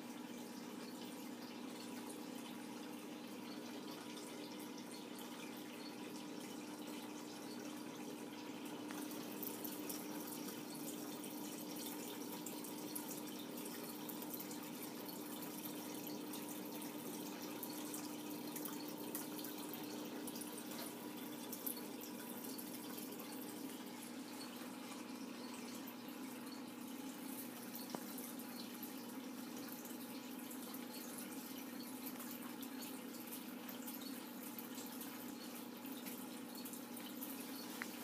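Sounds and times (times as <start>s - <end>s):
water trickling and dripping: 0.0s - 38.0s.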